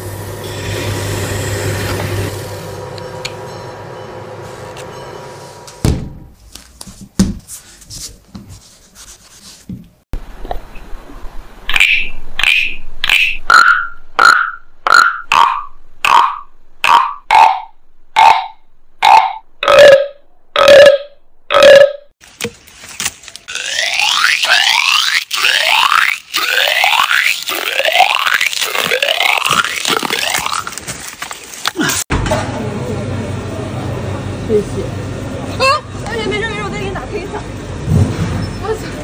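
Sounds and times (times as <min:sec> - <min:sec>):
wooden frog guiros croaking: 0:11.7 - 0:22.1, 0:23.4 - 0:30.8.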